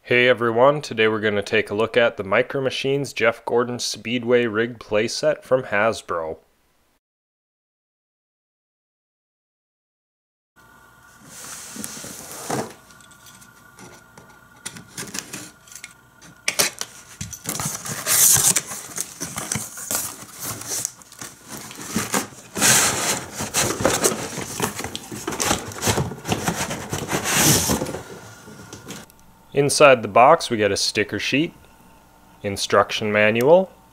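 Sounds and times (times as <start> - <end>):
cardboard scraping and rustling: 11.2 - 13.0, 13.6 - 29.1.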